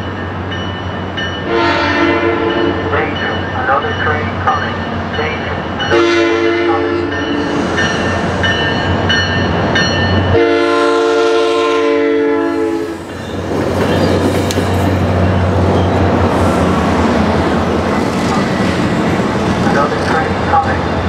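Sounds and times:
train wheels rumbling on rails: 0.0s - 21.0s
train air horn blasts: 1.5s - 2.9s, 5.9s - 7.2s, 10.3s - 13.0s.

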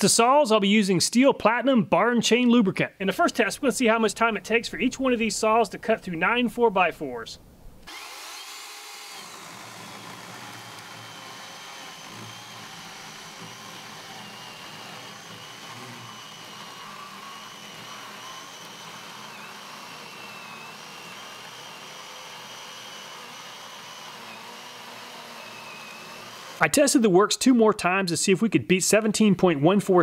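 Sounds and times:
battery chainsaw cutting lumber: 7.8s - 26.9s.

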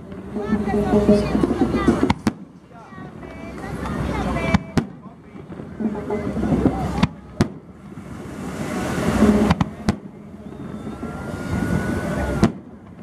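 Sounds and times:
firework bangs: 0.0s - 13.0s
faint thin whistle: 10.2s - 12.4s.

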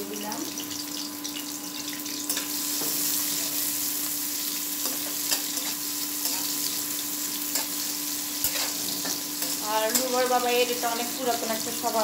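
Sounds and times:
onions sizzling in oil: 0.0s - 12.0s
metal spatula scraping pan: 8.4s - 10.2s.

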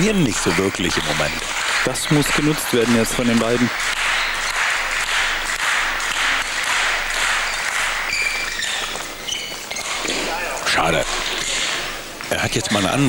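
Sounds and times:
murmur of crowd: 0.0s - 13.0s
shoe squeaks on court: 7.5s - 11.9s.

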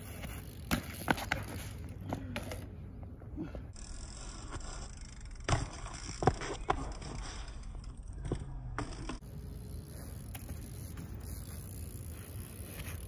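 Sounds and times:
bike knocks and clanks: 0.2s - 2.7s, 5.4s - 9.4s.

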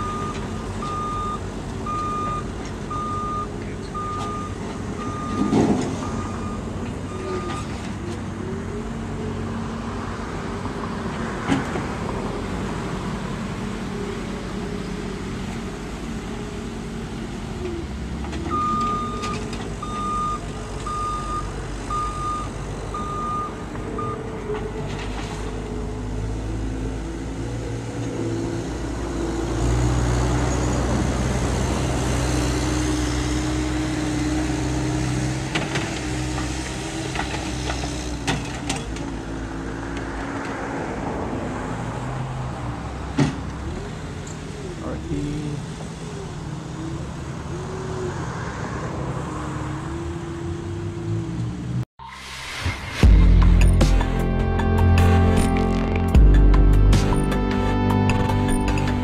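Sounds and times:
backup alarm beeping: 0.0s - 7.6s, 18.5s - 24.2s
diesel loader engine running: 0.0s - 39.8s, 52.5s - 59.0s.

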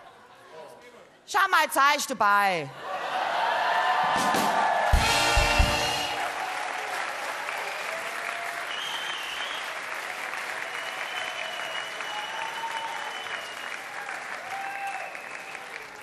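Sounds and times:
audience applauding: 3.5s - 16.0s.

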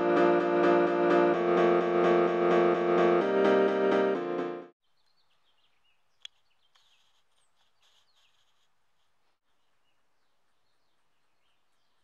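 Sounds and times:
small birds chirping: 4.8s - 8.7s, 9.4s - 12.0s.

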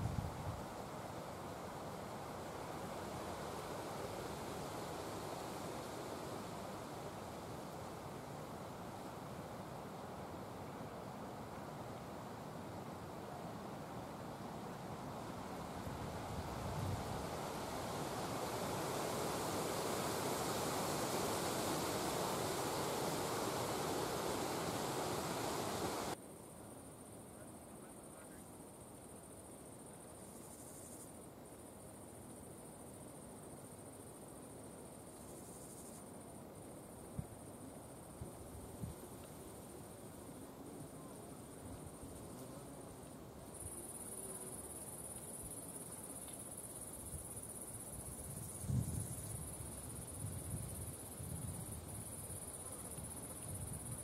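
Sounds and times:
crickets trilling: 0.0s - 54.0s.

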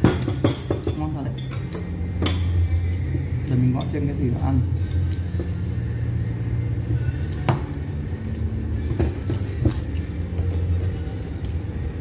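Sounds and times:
low room noise rumble: 0.0s - 12.0s.

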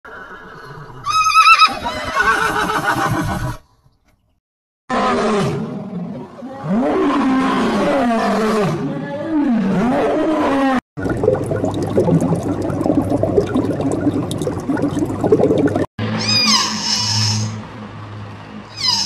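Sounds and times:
horse whinnying: 0.1s - 3.6s
lion growling and roaring: 4.9s - 10.8s.

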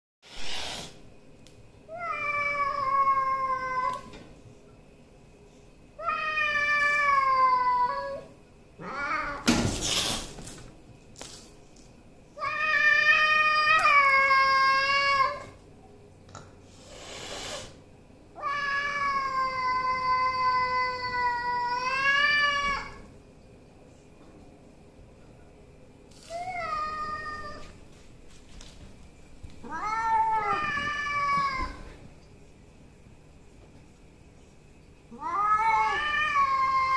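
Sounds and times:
cat yowling: 29.6s - 31.8s, 35.1s - 36.9s.

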